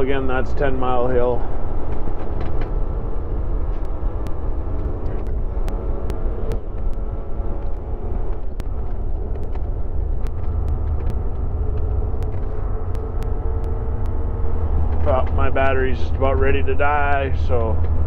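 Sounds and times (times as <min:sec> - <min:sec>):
truck diesel engine droning: 0:00.0 - 0:18.0
faint ticks: 0:03.7 - 0:14.2.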